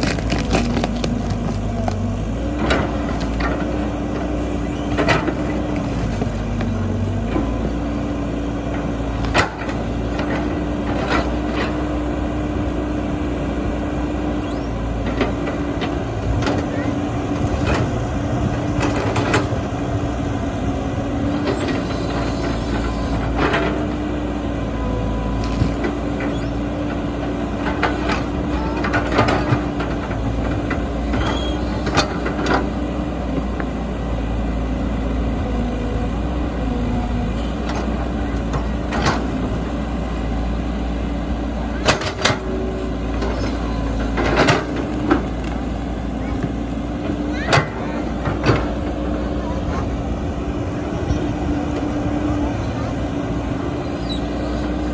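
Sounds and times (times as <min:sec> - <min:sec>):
bucket tearing at earth: 0:00.0 - 0:02.0
excavator diesel engine running: 0:00.0 - 0:54.9.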